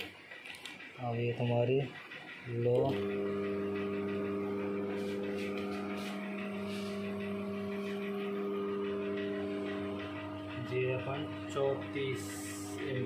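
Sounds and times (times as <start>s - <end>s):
fan motor humming: 0.0s - 13.0s.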